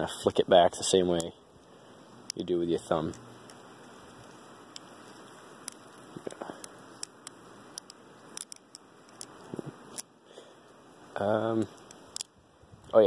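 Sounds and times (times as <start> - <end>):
faint hiss: 0.0 - 13.0
butterfly knife clicks: 5.6 - 10.1.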